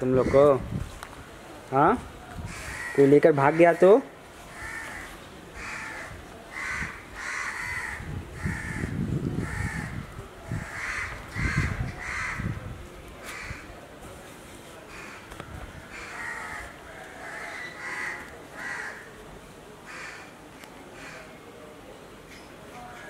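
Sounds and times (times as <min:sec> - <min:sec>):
crow cawing: 0:02.5 - 0:10.0, 0:10.6 - 0:12.5, 0:14.9 - 0:15.3, 0:15.9 - 0:19.1, 0:19.9 - 0:20.3, 0:21.0 - 0:21.3.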